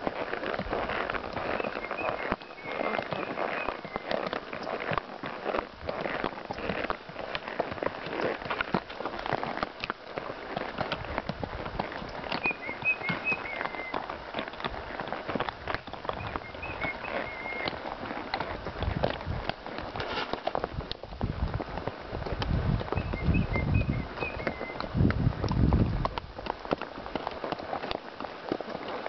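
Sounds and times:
hooves on dirt trail: 0.0 - 29.0
bird chirping: 1.5 - 4.2, 12.4 - 14.0, 16.2 - 17.7, 23.0 - 24.8.

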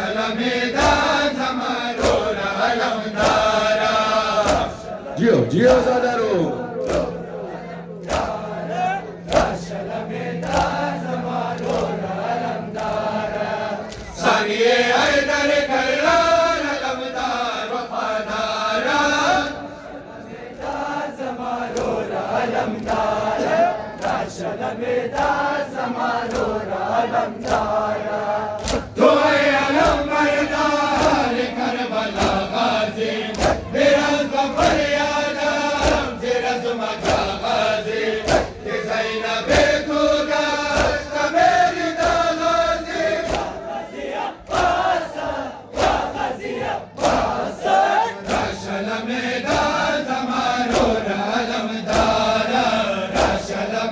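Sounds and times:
crowd of men chanting: 0.0 - 53.9
hands slapping chests: 2.0 - 2.4, 3.2 - 3.7, 4.3 - 4.8, 5.6 - 6.0, 6.8 - 7.2, 8.0 - 8.6, 9.2 - 9.8, 10.4 - 10.9, 26.2 - 26.6, 27.4 - 27.8, 28.6 - 29.0, 29.7 - 31.4, 32.1 - 32.6, 33.3 - 33.7, 34.5 - 35.0, 35.6 - 36.2, 36.9 - 37.6, 38.2 - 38.7, 39.4 - 42.4, 43.2 - 43.7, 44.4 - 48.6, 50.6 - 51.0, 51.8 - 52.3, 53.1 - 53.5.

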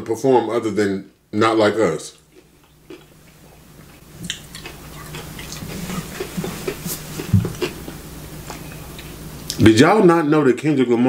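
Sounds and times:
steady low hum: 0.0 - 11.0
person chewing food: 2.2 - 9.6.

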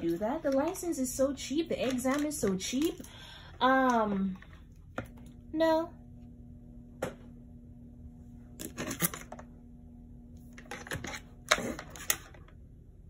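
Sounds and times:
person speaking: 0.0 - 4.5
low electrical hum: 0.0 - 13.0.

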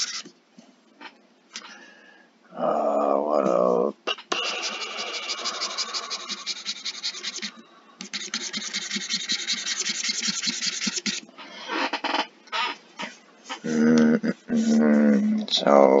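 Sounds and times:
stylus scratching on a tablet: 0.0 - 0.3, 4.1 - 13.7.

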